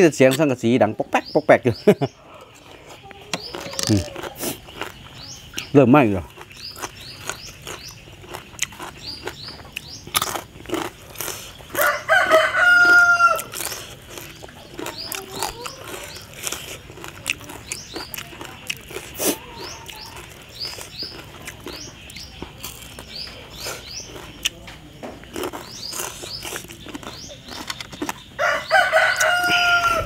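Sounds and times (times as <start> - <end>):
small chirps: 1.8 - 30.0
rooster crowing: 11.7 - 13.7, 28.4 - 30.0.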